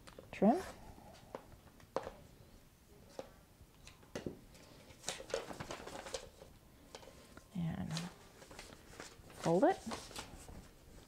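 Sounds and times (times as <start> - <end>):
paper and fabric rustling: 4.5 - 11.0.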